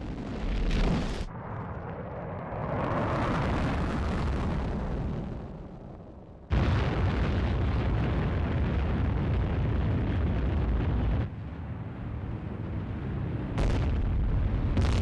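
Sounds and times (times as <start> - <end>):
rocket launch roar: 0.1 - 5.9, 13.5 - 15.0.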